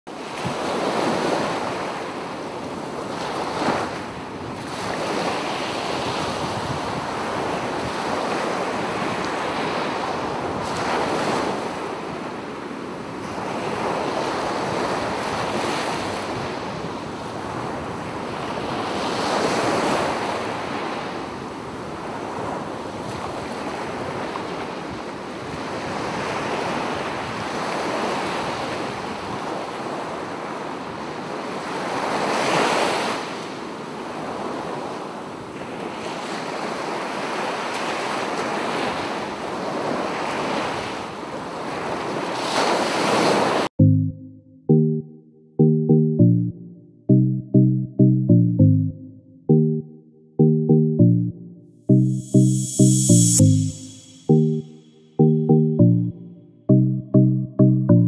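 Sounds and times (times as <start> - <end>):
wind blowing across microphone: 0.2 - 29.6.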